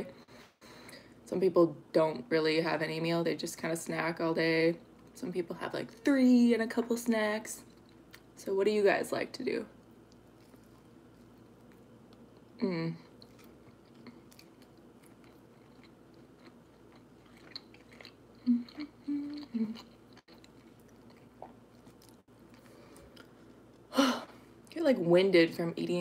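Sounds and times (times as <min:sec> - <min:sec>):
close-up chewing: 0:09.8 - 0:23.9.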